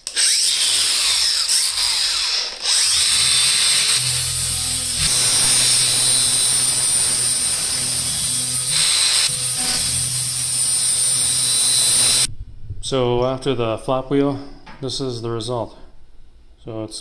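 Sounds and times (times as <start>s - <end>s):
angle grinder whining: 0.0s - 12.3s.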